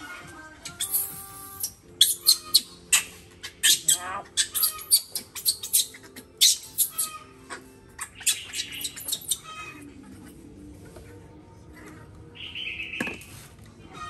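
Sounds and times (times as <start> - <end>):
faint background music: 0.0 - 14.0
baby monkey squeaking: 0.6 - 9.8
monkey squeal: 0.7 - 9.8.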